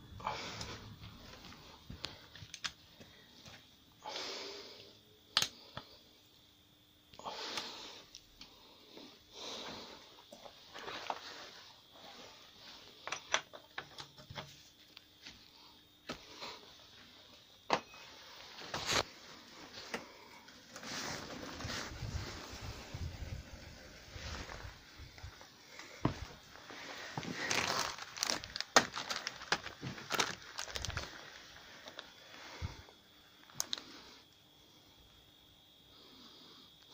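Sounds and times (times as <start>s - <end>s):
rustling near microphone: 18.4s - 31.9s.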